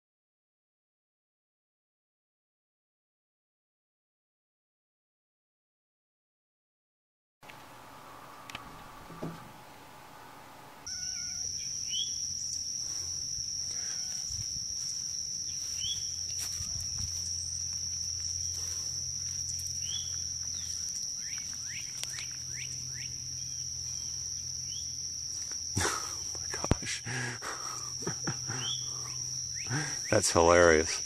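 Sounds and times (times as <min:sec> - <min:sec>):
crickets trilling: 0:10.6 - 0:31.0
short insect chirps: 0:10.8 - 0:31.0.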